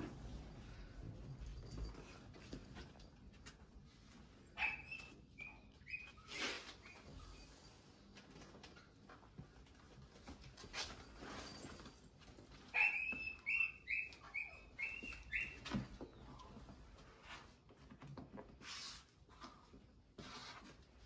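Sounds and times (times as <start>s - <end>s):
soft rustling: 0.0s - 21.0s.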